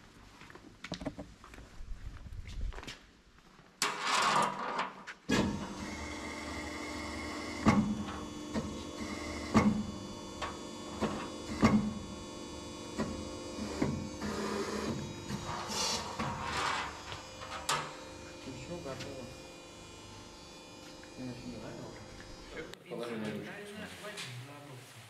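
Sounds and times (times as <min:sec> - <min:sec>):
electric pump hum: 0:05.3 - 0:22.9.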